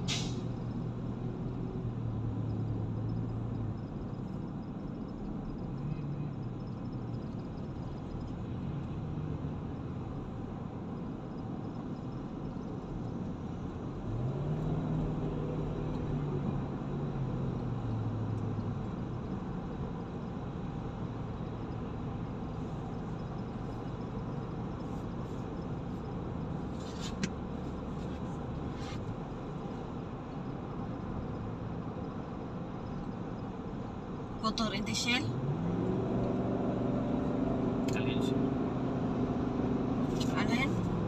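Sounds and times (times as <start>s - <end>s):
tyre road noise: 0.0s - 41.0s
car engine accelerating: 34.9s - 41.0s.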